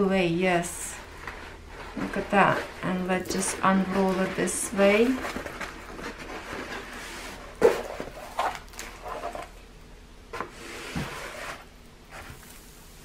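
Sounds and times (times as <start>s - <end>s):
plastic sheet rustling and crinkling: 0.6s - 9.6s.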